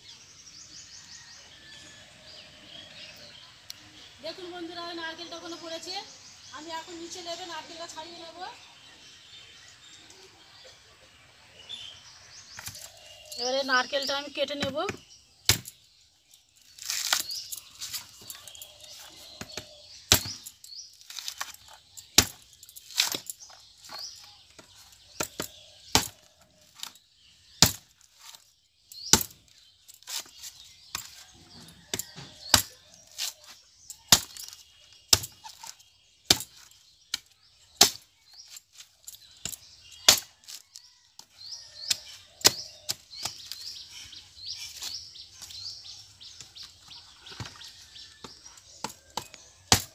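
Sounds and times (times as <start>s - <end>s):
birds chirping: 0.0s - 49.9s
blade chopping coconut husk: 14.6s - 15.8s, 19.3s - 26.2s, 27.6s - 28.4s, 29.1s - 29.4s, 31.9s - 38.1s, 39.4s - 40.6s, 41.2s - 45.6s, 48.2s - 49.9s.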